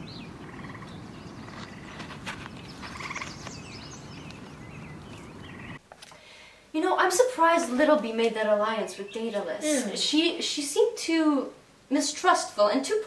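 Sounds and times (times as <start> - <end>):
bird trills: 0.0 - 5.8
small birds chirping: 0.0 - 5.8, 7.6 - 10.1
footfalls on sandy ground: 1.4 - 5.3.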